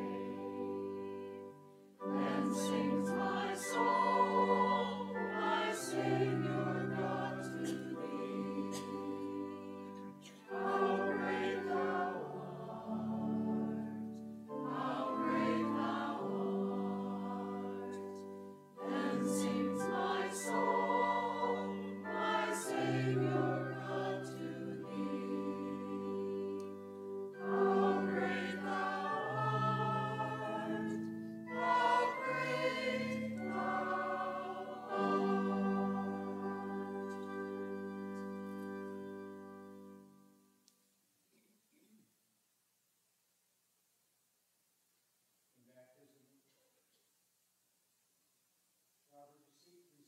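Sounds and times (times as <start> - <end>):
choir singing a hymn: 0.0 - 40.0.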